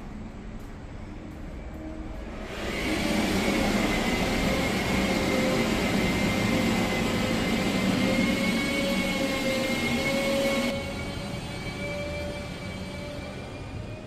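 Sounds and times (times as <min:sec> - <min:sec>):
mechanical whir: 0:02.3 - 0:12.6.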